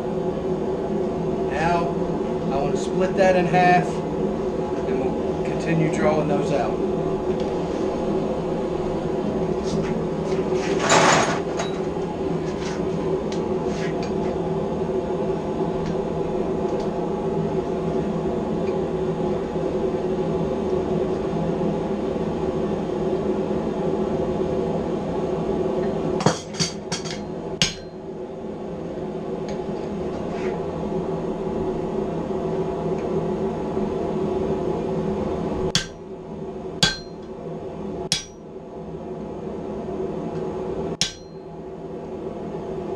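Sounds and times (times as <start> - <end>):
droning hum: 0.0 - 42.9
hammer striking chisel on steel: 26.3 - 27.9, 35.8 - 36.0, 36.8 - 37.2, 38.1 - 38.4, 41.0 - 41.4.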